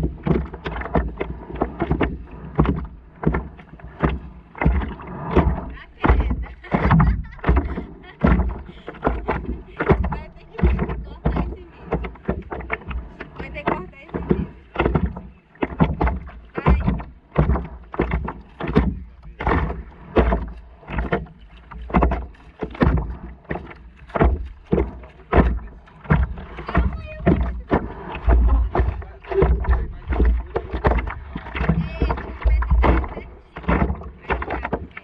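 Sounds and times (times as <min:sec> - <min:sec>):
small waves slapping a board: 0:00.0 - 0:35.0
low rumble: 0:16.4 - 0:35.0.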